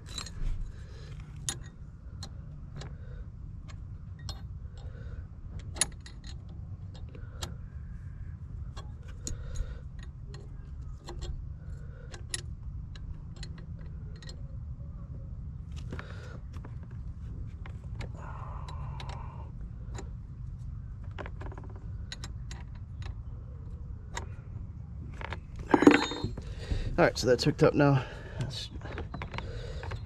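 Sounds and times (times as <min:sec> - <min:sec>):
steady low rumble: 0:00.0 - 0:30.0
small metal clicks and taps: 0:03.7 - 0:04.9.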